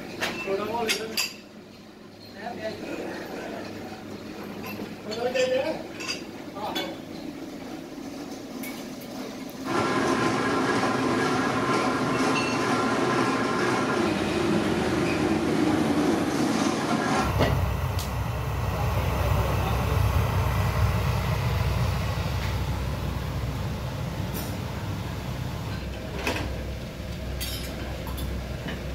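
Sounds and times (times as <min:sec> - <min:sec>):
mechanical hum: 0:00.0 - 0:28.9
gas burner flame rumbling: 0:07.4 - 0:28.9.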